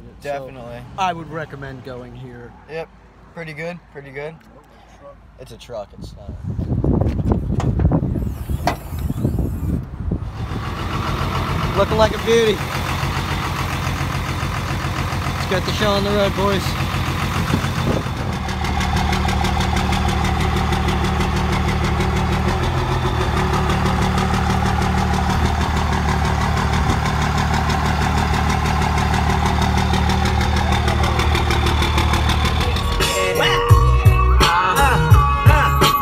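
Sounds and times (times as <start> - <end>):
vehicle engine idling: 7.4 - 36.0.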